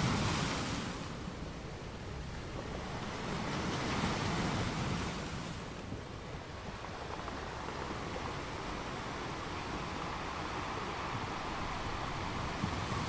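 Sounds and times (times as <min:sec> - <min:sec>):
small waves washing over sand: 0:02.2 - 0:13.0.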